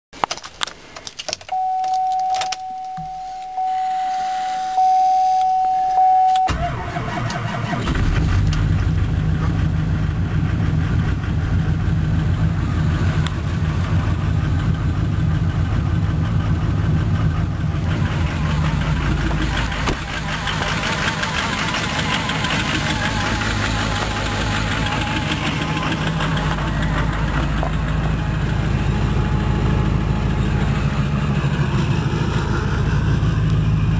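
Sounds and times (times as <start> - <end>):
diesel engine starting and idling: 1.5 - 33.9
steady electronic tone: 1.6 - 6.5.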